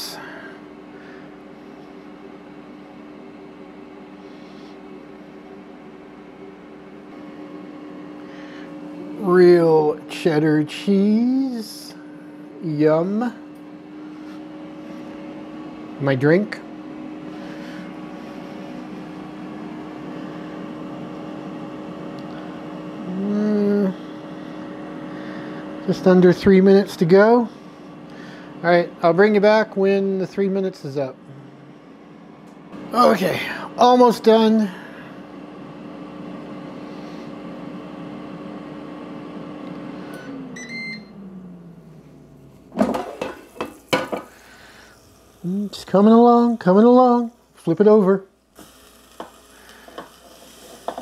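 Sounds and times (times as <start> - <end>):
air fryer humming: 0.0 - 51.0
short beeps: 40.6 - 41.1.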